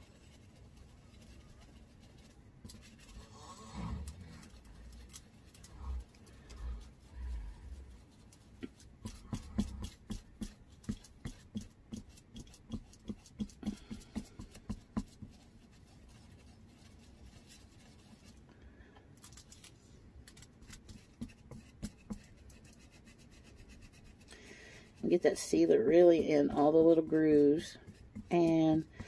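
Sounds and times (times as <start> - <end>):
paintbrush tapping: 7.9 - 18.2, 20.6 - 24.3, 25.8 - 29.0.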